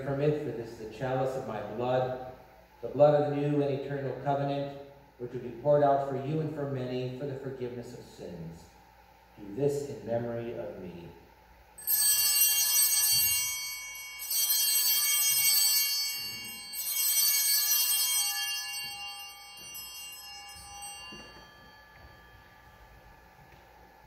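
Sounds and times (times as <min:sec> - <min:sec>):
small bells jingling: 0:11.8 - 0:23.6.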